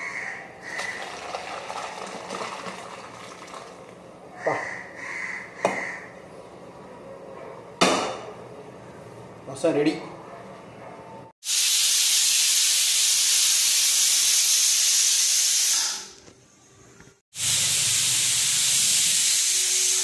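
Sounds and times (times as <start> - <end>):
pressure cooker steam hissing: 11.4 - 16.1, 17.4 - 20.0.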